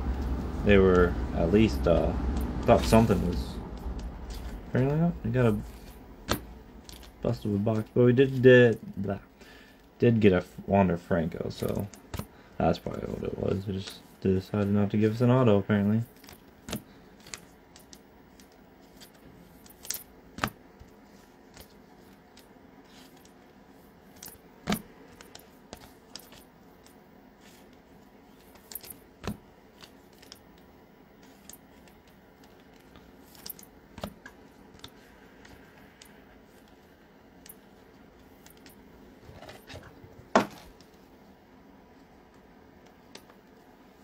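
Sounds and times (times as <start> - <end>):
trading cards clicking and tapping: 0.1 - 9.2, 11.6 - 14.8, 16.1 - 23.4, 24.1 - 37.7, 38.3 - 38.9.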